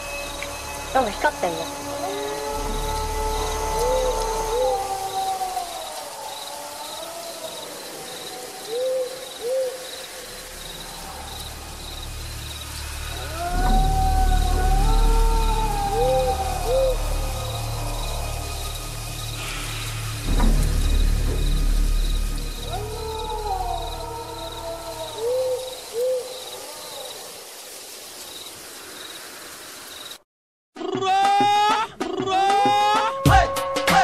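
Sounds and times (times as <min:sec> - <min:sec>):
eerie wavering hooting tones: 0:00.0 - 0:27.2
high insect-like chirping: 0:00.0 - 0:30.2.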